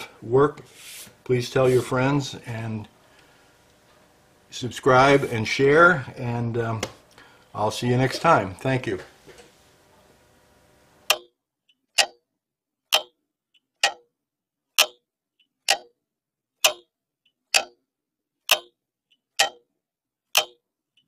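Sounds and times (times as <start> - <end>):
clock ticking: 11.1 - 12.2, 12.9 - 14.1, 14.8 - 16.0, 16.6 - 17.8, 18.4 - 19.7, 20.3 - 21.0
faint clock click: 11.1 - 12.2, 12.9 - 13.2, 13.8 - 14.1, 14.8 - 16.0, 16.6 - 16.9, 17.5 - 17.8, 18.5 - 19.6, 20.3 - 21.0.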